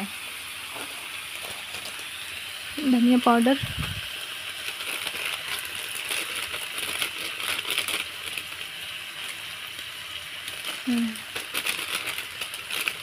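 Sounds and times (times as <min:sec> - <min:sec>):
food sizzling and crackling in oil: 0:00.0 - 0:13.0.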